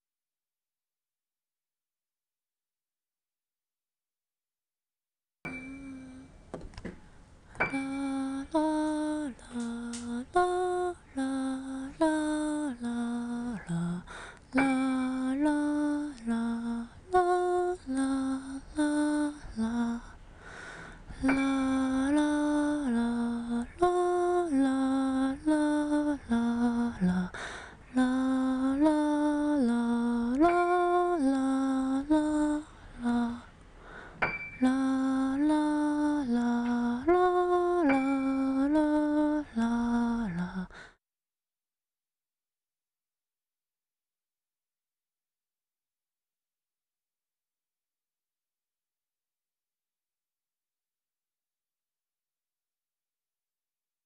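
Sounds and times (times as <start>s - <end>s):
woman humming a slow melody: 5.5s - 6.4s, 7.6s - 20.2s, 21.1s - 40.9s.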